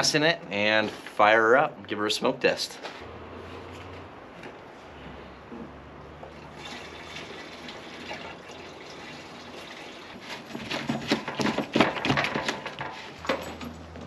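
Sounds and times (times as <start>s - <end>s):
gasoline pouring into tank: 6.3s - 12.2s.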